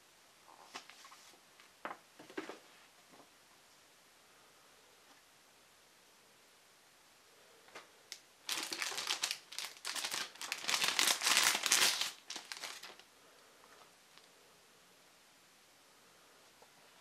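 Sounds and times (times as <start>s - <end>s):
plastic packaging crinkling: 8.4s - 13.1s.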